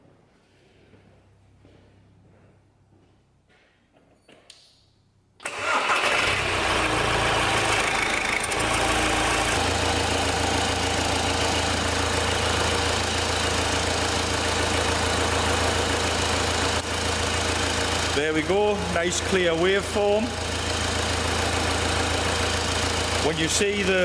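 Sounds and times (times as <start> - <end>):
diesel engine idling: 5.5 - 24.0.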